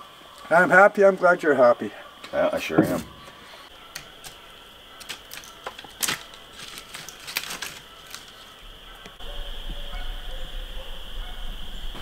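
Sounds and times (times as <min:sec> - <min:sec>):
dry sticks snapping: 0:03.2 - 0:09.2.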